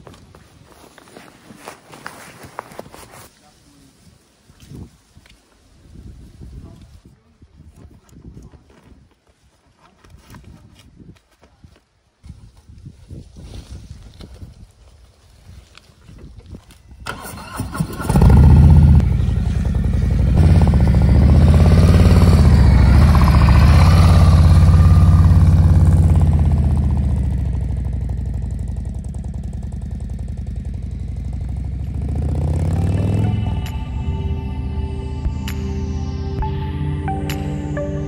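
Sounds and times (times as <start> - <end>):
electric starter cranking: 17.0 - 18.8
motorcycle engine revving and running: 17.4 - 33.9.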